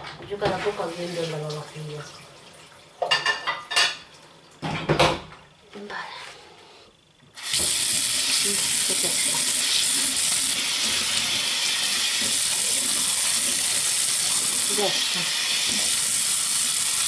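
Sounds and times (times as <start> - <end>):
tap turned on: 7.2 - 7.8
water running into metal sink: 7.4 - 17.0.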